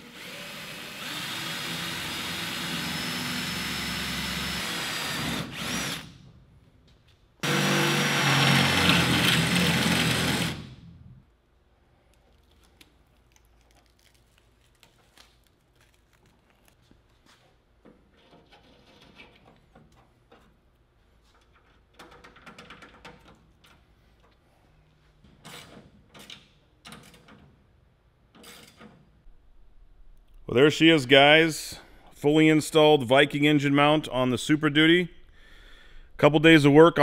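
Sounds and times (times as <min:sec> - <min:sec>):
cordless drill drilling sheet metal: 0:00.0 - 0:06.2, 0:07.4 - 0:10.9.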